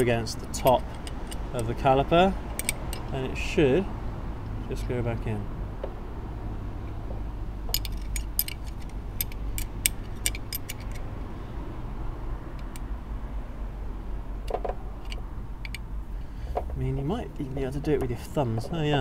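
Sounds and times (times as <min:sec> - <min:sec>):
spanner clinking on metal: 0:00.0 - 0:03.3, 0:07.7 - 0:11.1, 0:14.6 - 0:15.9.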